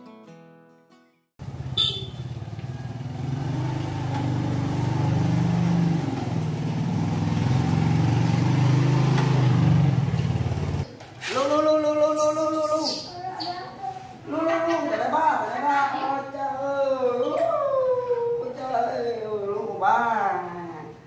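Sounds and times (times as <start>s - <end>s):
small motorbike engine running: 1.4s - 10.8s.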